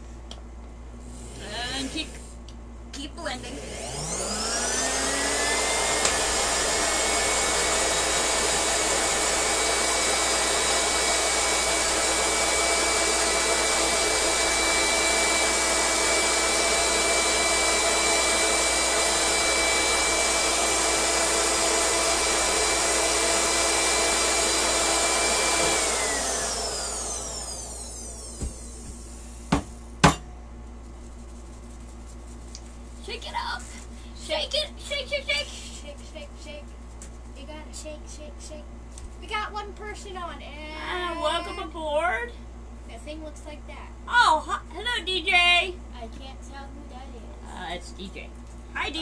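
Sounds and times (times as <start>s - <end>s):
blender motor running: 1.1s - 2.2s, 3.3s - 29.6s.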